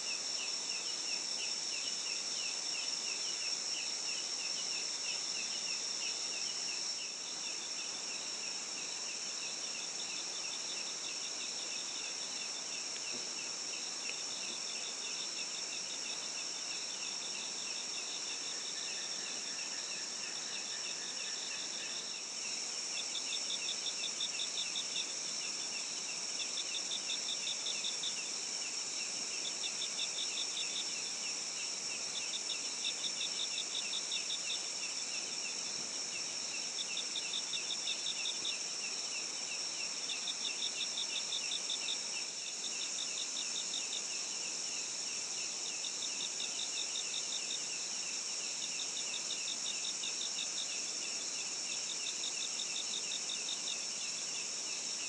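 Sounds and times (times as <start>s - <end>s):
crickets and insects droning: 0.0s - 55.0s.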